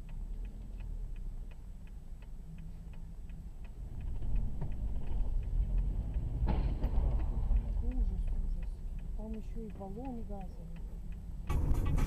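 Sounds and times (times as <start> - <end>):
low engine rumble: 0.0 - 12.0
turn signal ticking: 0.0 - 12.0.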